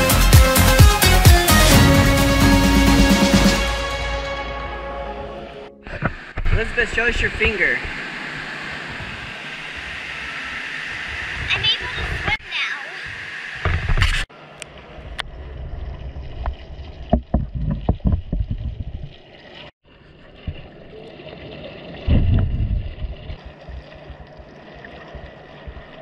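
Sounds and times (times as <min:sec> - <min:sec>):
muffled underwater rumble: 0:05.8 - 0:12.4, 0:13.0 - 0:19.2, 0:19.9 - 0:26.0
low surge of water: 0:14.3 - 0:26.0.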